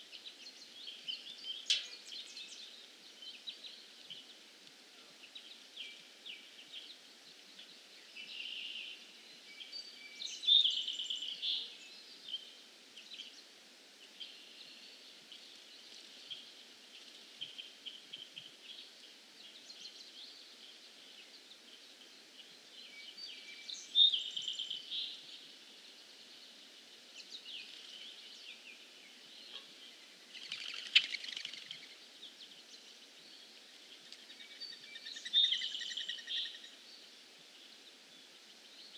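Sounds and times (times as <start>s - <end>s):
faint background noise: 0.0s - 38.9s
songbirds singing: 0.0s - 38.9s.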